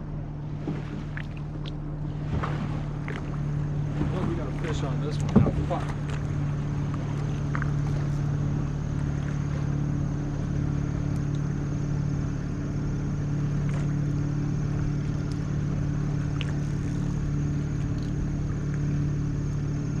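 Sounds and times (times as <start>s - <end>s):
outboard motor running: 0.0s - 20.0s
faint ticks: 11.0s - 11.5s, 15.1s - 15.5s.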